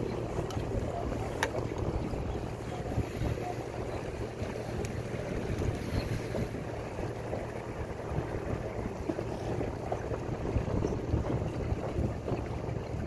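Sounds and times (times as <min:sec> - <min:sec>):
water splashing against boat: 0:00.0 - 0:13.0
wind buffeting microphone: 0:00.0 - 0:13.0.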